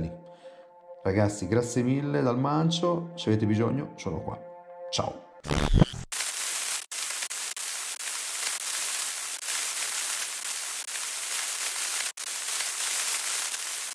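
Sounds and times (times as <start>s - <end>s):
static hiss: 5.5s - 13.9s.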